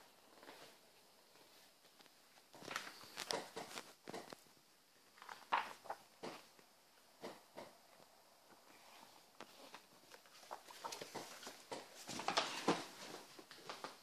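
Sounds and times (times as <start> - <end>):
magazine pages rustling and flapping: 1.5 - 4.4, 5.1 - 6.5, 9.3 - 14.0.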